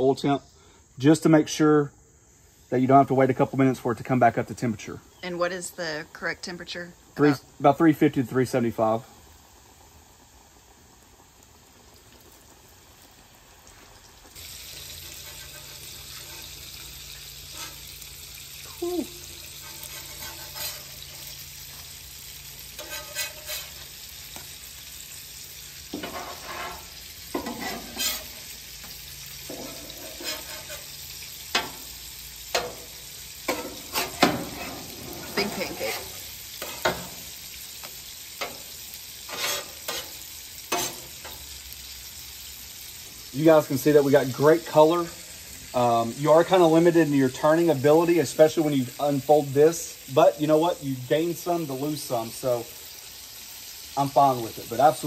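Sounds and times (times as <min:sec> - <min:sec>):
pancakes sizzling on a griddle: 0:00.0 - 0:55.0
metal spatula scraping steel plate: 0:15.0 - 0:18.0, 0:19.4 - 0:21.4, 0:22.7 - 0:23.9, 0:25.9 - 0:28.5, 0:29.4 - 0:31.8, 0:33.5 - 0:37.1, 0:39.3 - 0:41.4.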